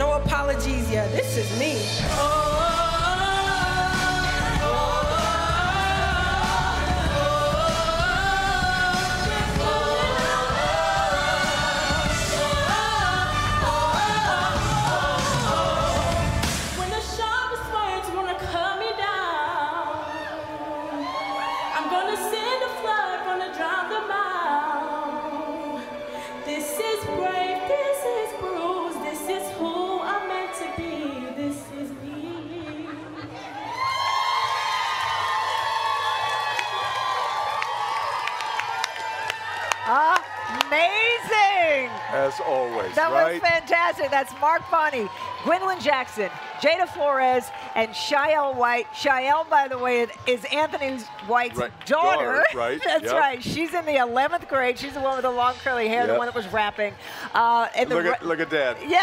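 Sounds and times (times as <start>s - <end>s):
vocal group singing in harmony: 1.9s - 33.6s.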